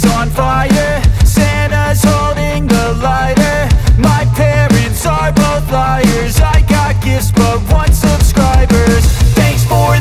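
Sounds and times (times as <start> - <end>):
upbeat music: 0.0 - 10.0.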